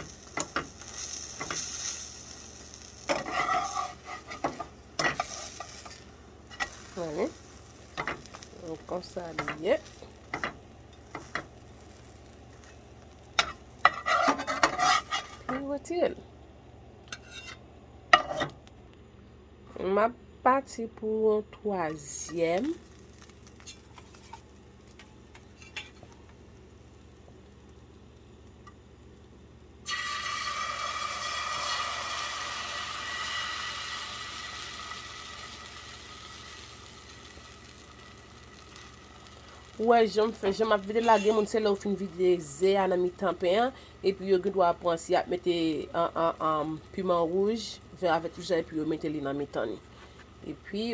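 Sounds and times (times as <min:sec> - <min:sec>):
omelet sizzling in pan: 0:00.0 - 0:18.7, 0:21.7 - 0:50.9
metal utensil scraping pan: 0:02.9 - 0:06.9, 0:13.4 - 0:15.6, 0:17.1 - 0:17.6, 0:25.4 - 0:26.0, 0:40.6 - 0:41.6.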